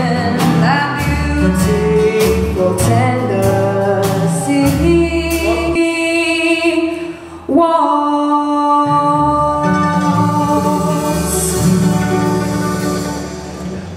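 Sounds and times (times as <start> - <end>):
acoustic guitars strummed: 0.0 - 5.8, 9.2 - 13.9
mandolin: 0.0 - 6.1, 8.8 - 13.9
upright bass: 0.0 - 7.0, 8.9 - 13.9
woman singing: 0.0 - 12.8.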